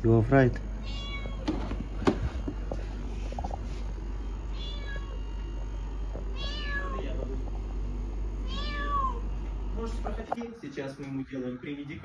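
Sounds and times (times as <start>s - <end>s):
cat meowing: 0.8s - 1.6s, 4.5s - 5.4s, 6.3s - 7.1s, 8.4s - 9.3s.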